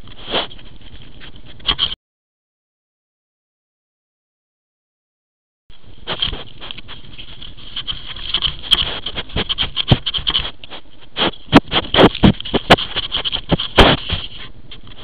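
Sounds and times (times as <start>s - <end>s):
badger sniffing and snuffling: 0.0s - 2.0s, 6.0s - 15.0s
snout scraping on housing: 6.0s - 15.0s.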